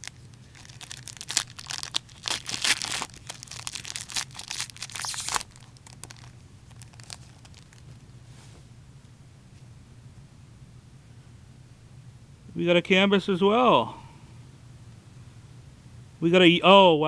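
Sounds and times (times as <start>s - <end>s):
plastic wrapper crinkling and tearing: 0.0s - 8.1s
faint rustles: 4.8s - 8.8s.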